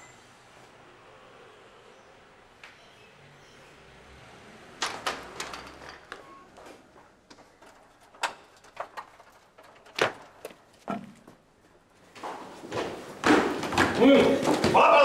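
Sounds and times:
sharp knocks and thuds: 12.3 - 14.8.

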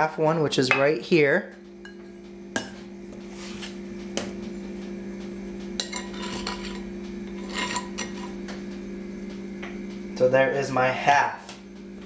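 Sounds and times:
steady low hum: 0.0 - 12.0
metal cup clinking and scraping: 5.8 - 8.4.

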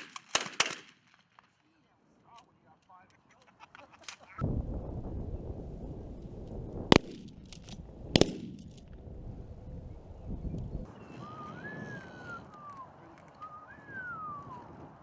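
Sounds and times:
shotgun shots: 0.0 - 1.2, 6.9 - 7.4, 8.1 - 8.7
steady low rumble: 4.4 - 10.9.

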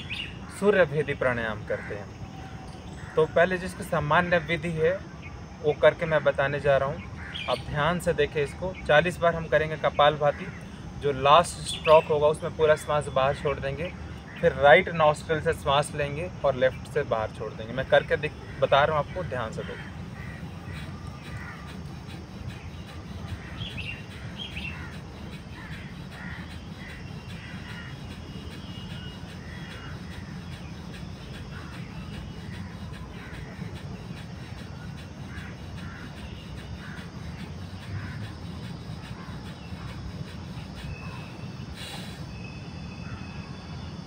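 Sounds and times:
crows cawing: 0.0 - 4.4, 7.1 - 8.0, 13.9 - 15.1, 18.2 - 41.7.

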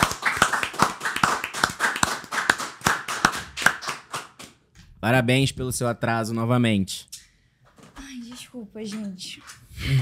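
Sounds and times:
people clapping: 0.0 - 4.7.

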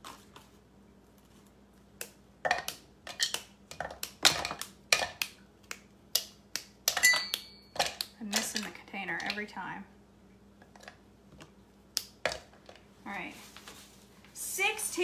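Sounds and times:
chocolate bar snapping: 2.0 - 8.2.

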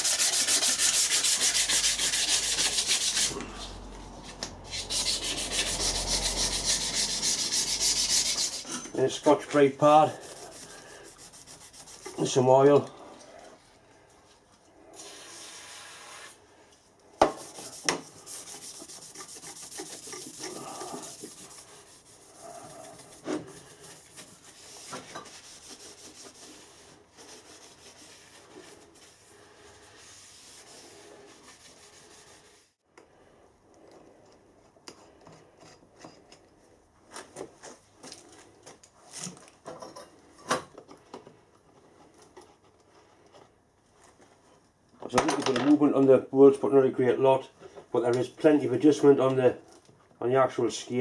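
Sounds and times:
pad scrubbing steel table: 0.0 - 8.7, 17.4 - 32.7.

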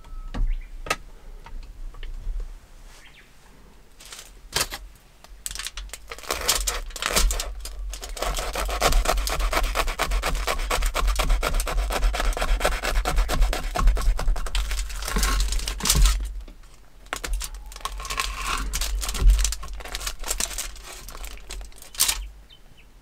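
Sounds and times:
knife sawing through crisp crust: 6.1 - 15.8, 17.8 - 22.0.

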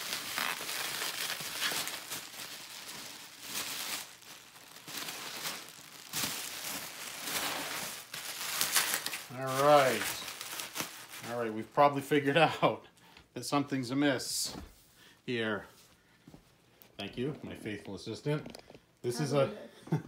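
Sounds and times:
bubble wrap crinkling: 0.0 - 12.3.

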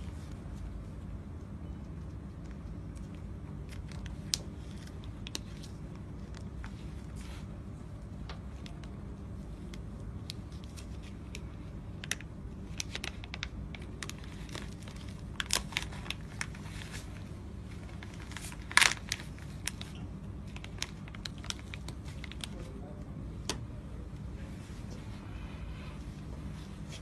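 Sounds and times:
steady low hum: 0.0 - 27.0
plastic wrapping crinkling and ripping: 2.2 - 7.5, 9.6 - 22.9.

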